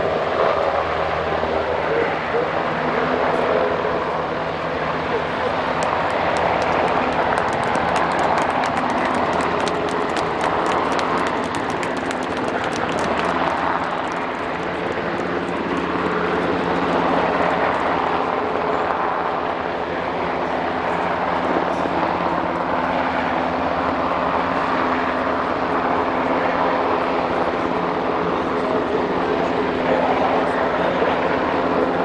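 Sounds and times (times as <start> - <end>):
helicopter hovering drone: 0.0 - 32.0.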